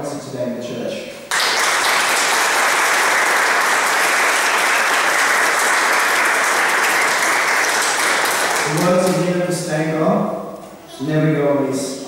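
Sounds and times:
audience clapping: 0:01.3 - 0:09.3.

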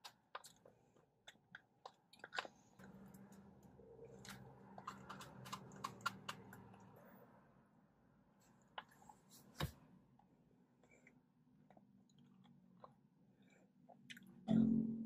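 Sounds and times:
chewing and mouth sounds: 0:00.0 - 0:03.4, 0:04.0 - 0:06.8, 0:11.0 - 0:14.6.

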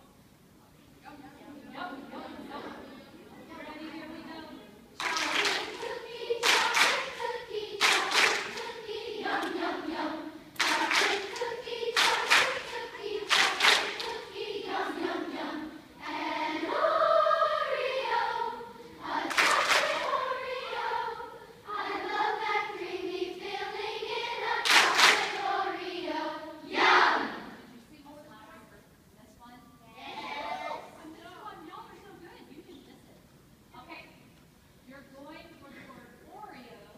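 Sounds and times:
children's choir singing: 0:01.7 - 0:04.2, 0:05.0 - 0:27.7.

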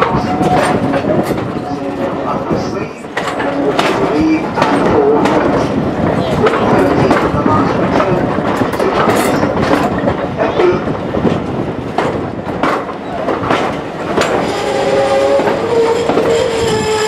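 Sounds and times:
train wheels clicking and knocking: 0:00.0 - 0:17.0
high-pitched squeal: 0:14.4 - 0:17.0.

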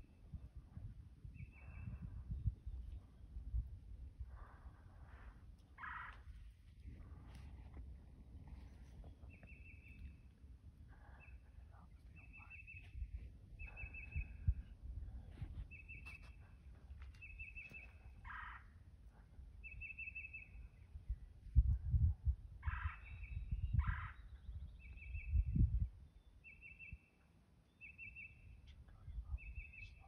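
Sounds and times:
low rumbling on microphone: 0:00.0 - 0:05.6, 0:06.3 - 0:17.0, 0:20.5 - 0:26.0.

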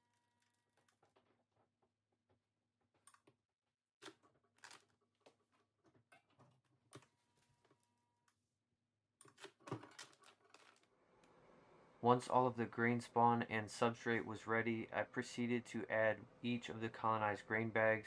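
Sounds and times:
plastic bag crinkling: 0:09.8 - 0:10.9.

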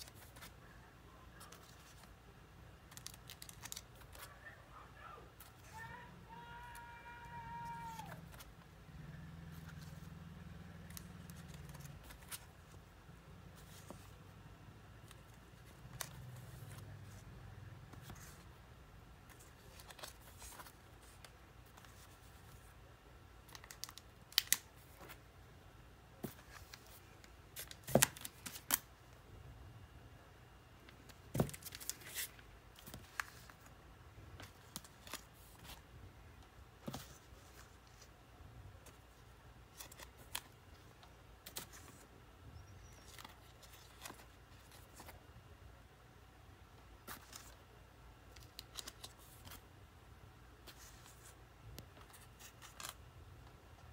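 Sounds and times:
records in plastic sleeves flipped: 0:02.8 - 0:04.4, 0:10.8 - 0:12.8, 0:15.0 - 0:17.2, 0:19.3 - 0:22.6, 0:23.4 - 0:25.2, 0:26.2 - 0:28.9, 0:30.9 - 0:33.7, 0:34.4 - 0:35.8, 0:38.8 - 0:42.0, 0:42.8 - 0:45.2, 0:48.3 - 0:49.6, 0:51.8 - 0:53.0.

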